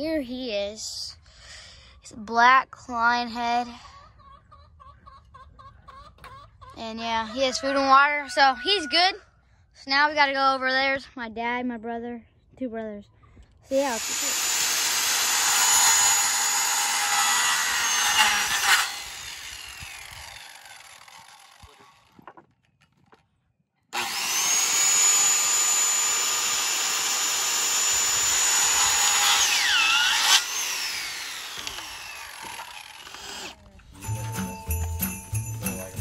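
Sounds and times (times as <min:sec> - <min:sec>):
circular saw cutting wood: 0:13.7 - 0:22.2, 0:24.0 - 0:34.2
saw motor winding down: 0:13.8 - 0:22.1, 0:24.0 - 0:33.6.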